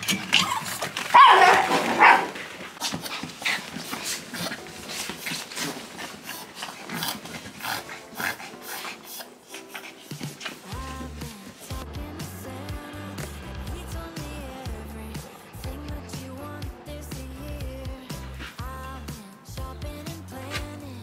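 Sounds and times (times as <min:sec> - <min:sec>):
small dogs whining: 0:00.0 - 0:02.4
paws scrabbling: 0:00.0 - 0:12.3
bedding rustling: 0:00.0 - 0:19.2
dogs panting: 0:00.0 - 0:21.0.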